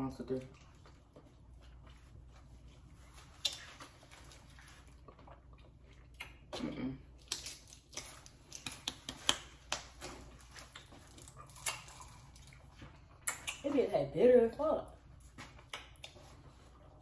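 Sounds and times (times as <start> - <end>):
mouth clicks and lip smacks: 5.0 - 10.0, 13.1 - 13.7, 15.4 - 16.4.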